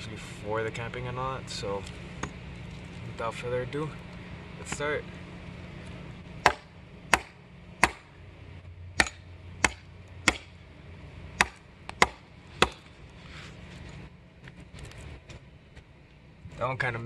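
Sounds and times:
tomahawk chopping into wood: 0:06.4 - 0:08.1, 0:09.0 - 0:10.6, 0:11.4 - 0:12.9.

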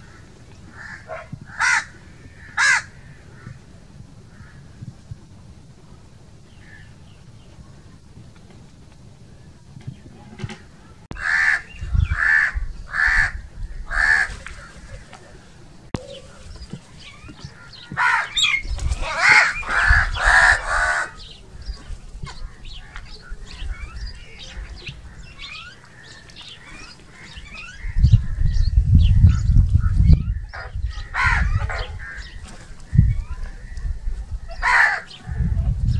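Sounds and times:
crows cawing: 0:00.0 - 0:03.6, 0:04.3 - 0:04.7, 0:11.1 - 0:15.0, 0:17.4 - 0:21.4, 0:24.5 - 0:28.0, 0:30.6 - 0:32.6, 0:34.5 - 0:35.4.

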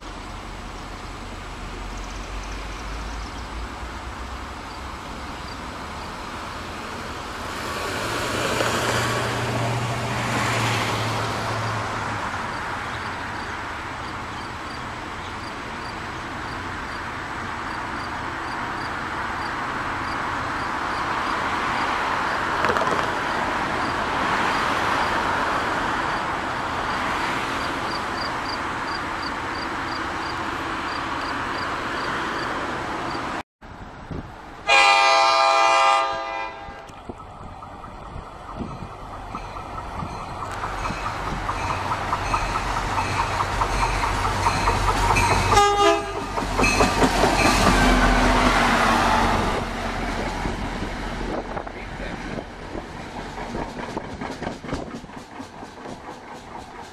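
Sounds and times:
diesel train engine drone: 0:00.0 - 0:56.9
train cars rumbling: 0:00.0 - 0:56.9
crossing bell ringing: 0:38.6 - 0:48.2.

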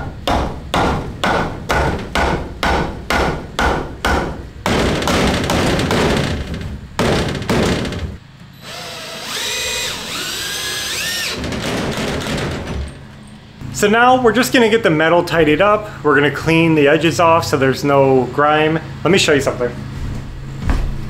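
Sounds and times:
power drill whining: 0:08.6 - 0:12.3.

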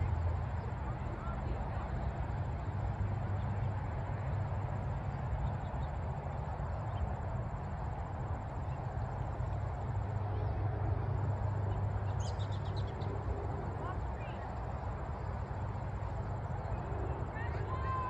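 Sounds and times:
low open-air rumble: 0:00.0 - 0:18.0.

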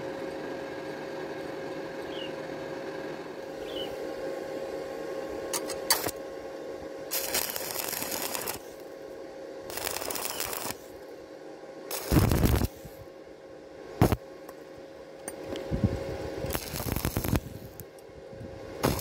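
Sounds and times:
welding arc crackling: 0:05.6 - 0:06.2, 0:07.1 - 0:08.9, 0:09.7 - 0:11.0, 0:11.9 - 0:13.0, 0:14.0 - 0:14.2, 0:16.4 - 0:18.0, 0:18.8 - 0:19.0
arc striking clicks: 0:09.7 - 0:10.8.

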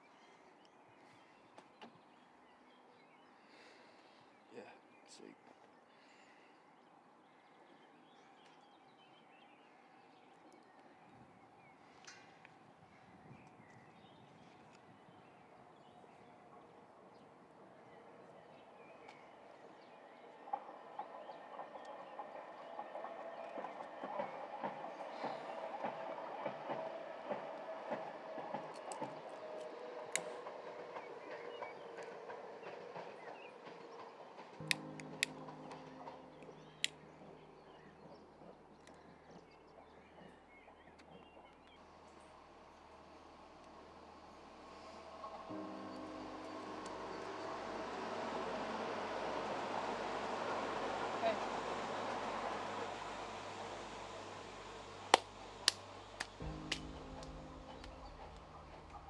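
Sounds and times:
train wheels clacking over rails: 0:20.4 - 0:41.5.

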